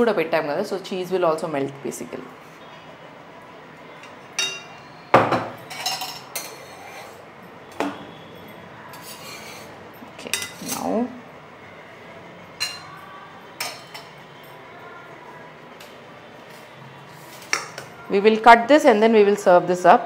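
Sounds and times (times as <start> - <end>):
steel kitchenware clanking: 4.0 - 8.1, 8.9 - 11.1, 12.6 - 13.0, 13.6 - 14.6.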